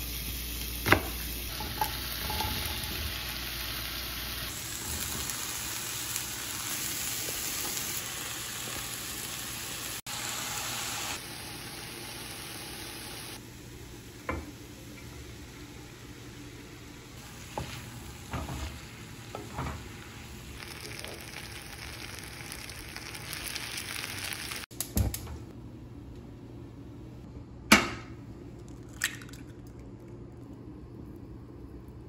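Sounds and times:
food sizzling in a hot pan: 0.0 - 13.4, 17.2 - 24.7.

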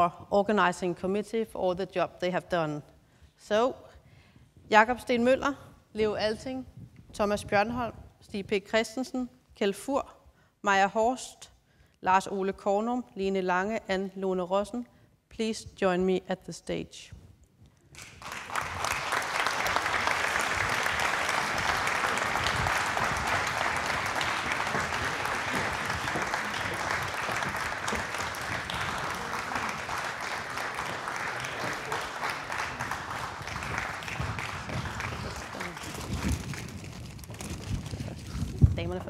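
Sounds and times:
audience applauding: 18.0 - 37.8.

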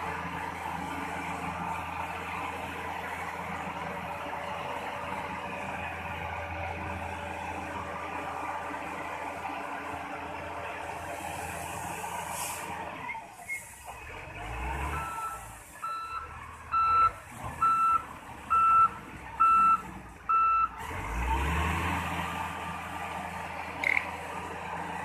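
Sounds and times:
diesel engine running: 0.0 - 25.0
reversing alarm beeping: 14.9 - 20.7.

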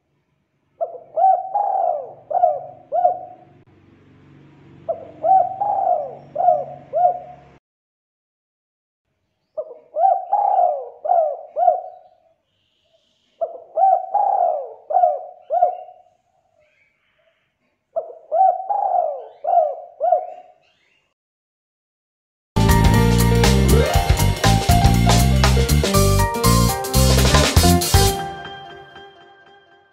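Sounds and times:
dove cooing: 0.8 - 3.6, 4.9 - 7.6, 9.6 - 12.1, 13.4 - 16.0, 18.0 - 20.6.

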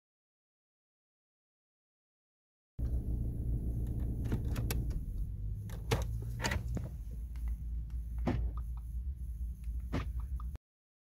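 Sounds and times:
steady low rumble: 2.8 - 10.6.

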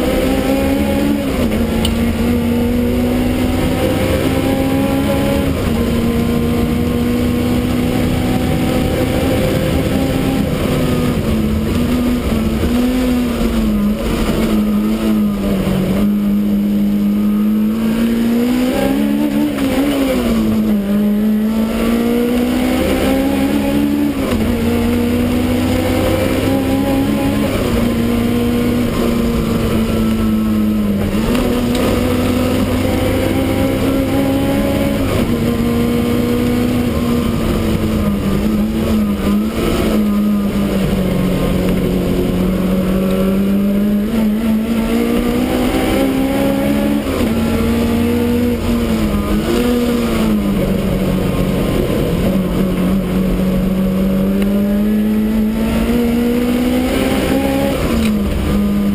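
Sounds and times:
race car engine running hard: 0.0 - 58.9.

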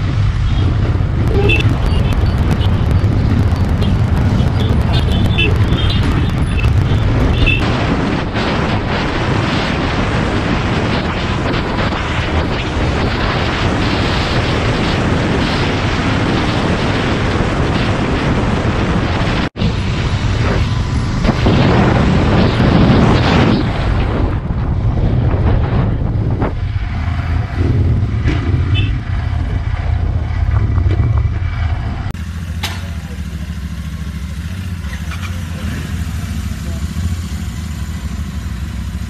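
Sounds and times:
motorcycle engine running: 0.0 - 8.5, 25.2 - 39.0
wind roaring on microphone: 0.0 - 32.5.

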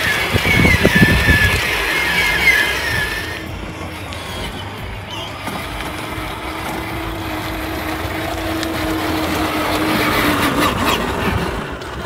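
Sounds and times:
plastic wheels rumbling on pavement: 0.0 - 12.0
toy car motor whine: 0.0 - 12.0.

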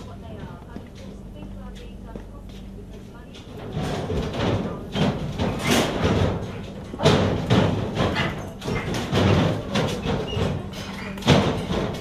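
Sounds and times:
irregular thumps and knocks: 3.5 - 12.0.

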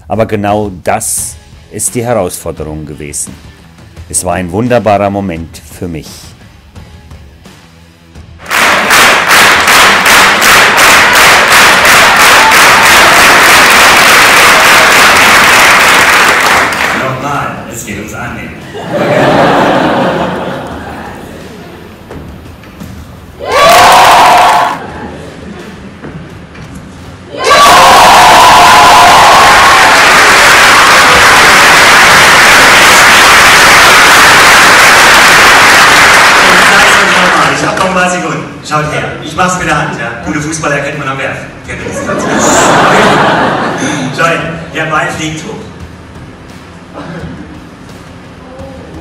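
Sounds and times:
audience applauding: 8.4 - 17.2, 27.6 - 38.0.

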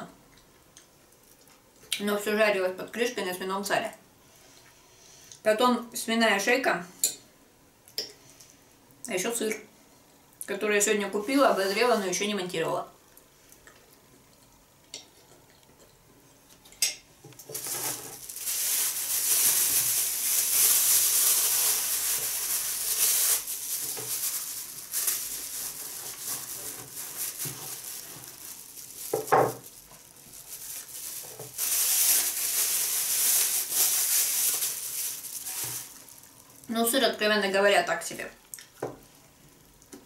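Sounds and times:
plastic bag rustling: 17.4 - 37.1.

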